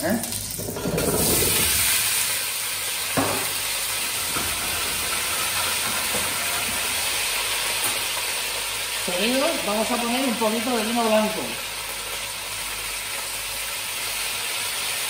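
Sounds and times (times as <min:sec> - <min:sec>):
potatoes sizzling in oil: 0:00.0 - 0:15.0
knock on pot: 0:03.2 - 0:03.6.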